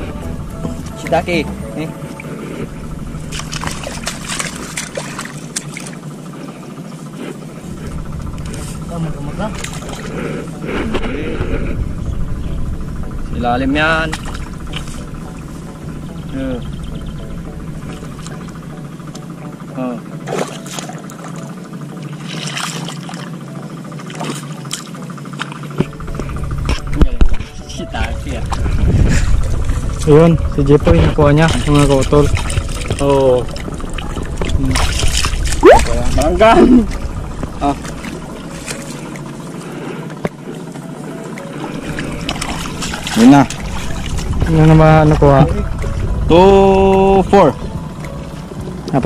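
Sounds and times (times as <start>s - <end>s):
mud and water squelching: 0.0s - 12.0s, 13.9s - 19.3s, 20.2s - 49.0s
hands squelching and splashing in mud: 3.3s - 6.0s, 22.2s - 23.3s, 31.4s - 37.0s.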